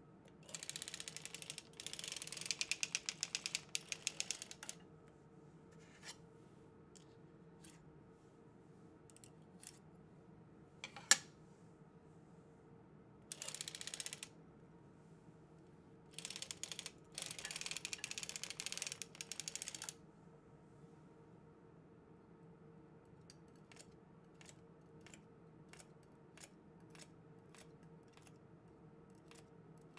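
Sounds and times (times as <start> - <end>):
sock machine rapid clicking: 0.4 - 4.8, 13.3 - 14.3, 16.2 - 19.9.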